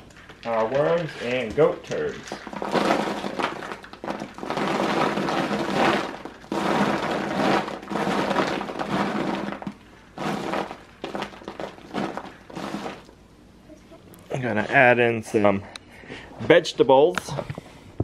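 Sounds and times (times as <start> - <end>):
compost rustling and scraping: 0.0 - 13.1.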